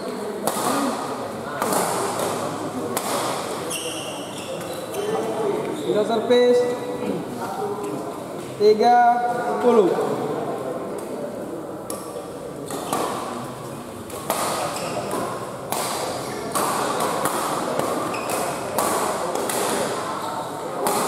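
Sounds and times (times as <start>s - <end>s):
badminton racket hitting shuttlecock: 14.1s - 20.0s, 20.8s - 21.0s.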